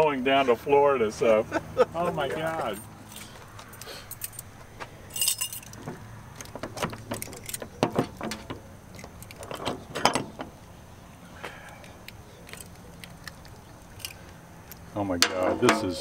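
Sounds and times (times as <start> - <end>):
keys jangling and metal clinking: 2.6 - 4.5, 5.1 - 10.3, 11.7 - 14.9.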